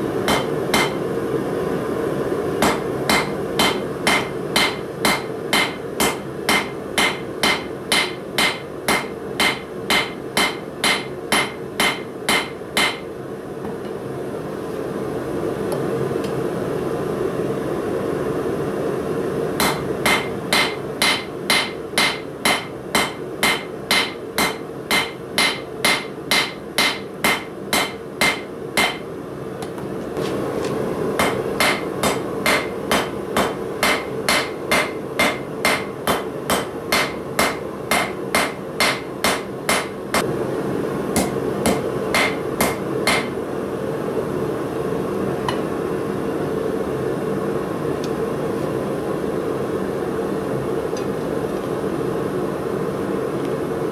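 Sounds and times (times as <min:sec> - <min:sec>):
hammer striking steel on anvil: 0:00.2 - 0:01.0, 0:02.6 - 0:13.1, 0:19.6 - 0:29.0, 0:31.2 - 0:40.3, 0:41.2 - 0:43.4.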